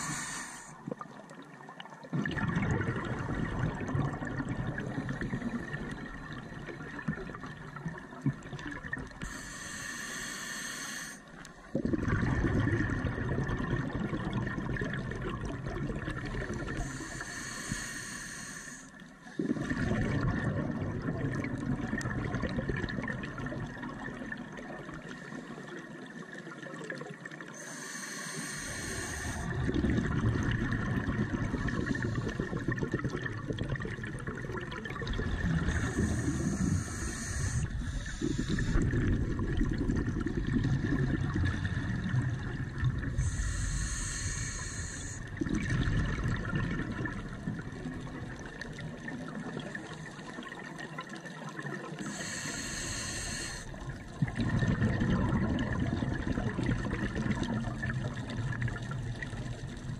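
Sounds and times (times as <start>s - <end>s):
diver's regulator hissing inhale: 0.0s - 0.8s, 9.2s - 11.7s, 16.4s - 19.8s, 27.5s - 29.8s, 31.5s - 32.8s, 35.2s - 39.4s, 43.0s - 45.5s, 51.9s - 54.0s
rushing exhaled bubbles: 0.8s - 9.2s, 11.6s - 17.2s, 19.3s - 27.4s, 28.9s - 59.9s.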